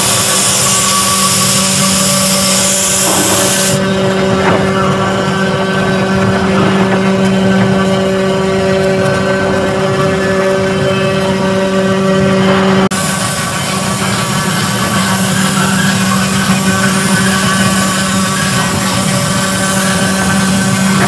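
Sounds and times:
bit cutting foam hiss: 0.0s - 3.8s.

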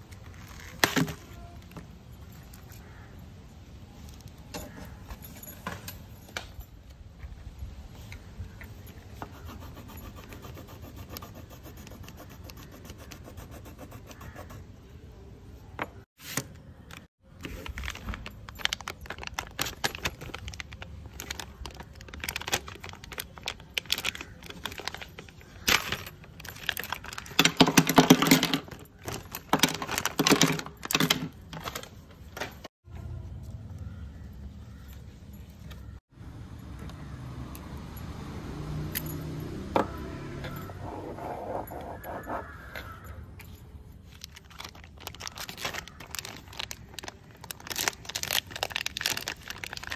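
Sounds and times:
packaging clicking and rustling: 16.9s - 32.7s, 44.1s - 49.9s.

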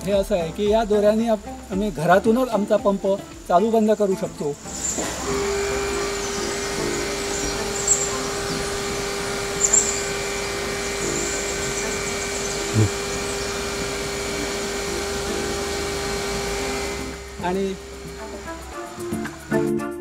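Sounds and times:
steady mechanical hum: 0.0s - 19.7s.

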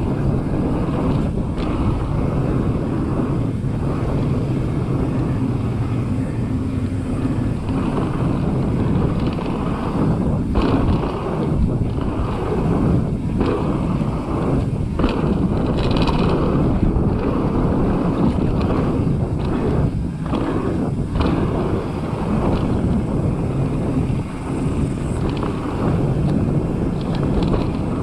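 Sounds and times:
tyres rolling on gravel: 0.0s - 28.0s
wind rushing over microphone: 0.0s - 28.0s
bike knocking over bumps: 7.6s - 28.0s.

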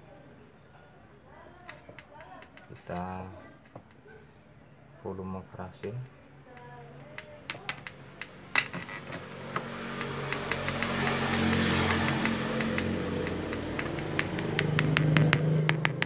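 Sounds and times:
crackling clicks: 6.5s - 16.0s.

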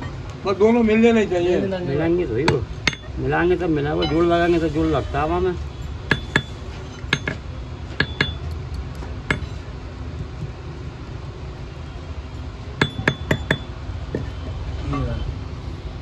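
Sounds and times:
hammer tapping metal on anvil: 2.4s - 3.2s, 6.1s - 8.6s, 9.2s - 9.6s, 12.8s - 14.3s.

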